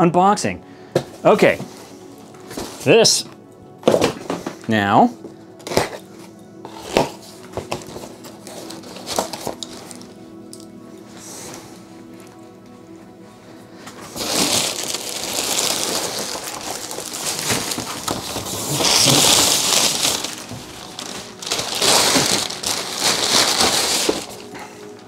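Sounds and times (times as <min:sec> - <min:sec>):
packing paper rustling: 0:05.6 - 0:11.7, 0:13.8 - 0:25.0.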